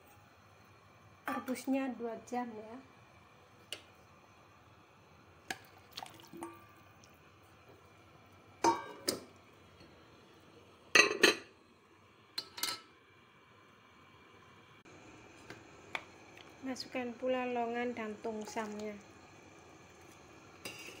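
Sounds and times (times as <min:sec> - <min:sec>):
water splashing in a pot: 0:05.4 - 0:07.4, 0:18.0 - 0:19.2
knocks and clinks at a pot: 0:08.6 - 0:09.3, 0:11.0 - 0:11.5.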